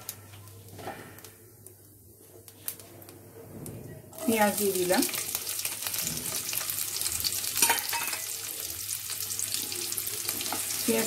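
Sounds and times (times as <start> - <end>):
onion sizzling in hot oil: 4.1 - 11.0.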